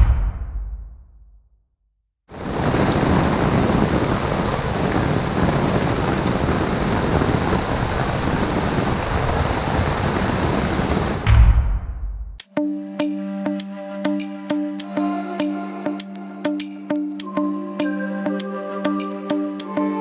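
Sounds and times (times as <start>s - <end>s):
rain falling on deck and water: 2.3s - 11.2s.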